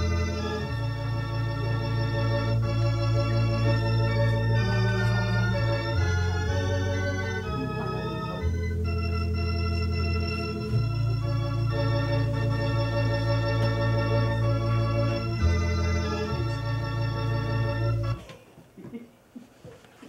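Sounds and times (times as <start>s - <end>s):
organ playing slow chords: 0.0s - 18.3s.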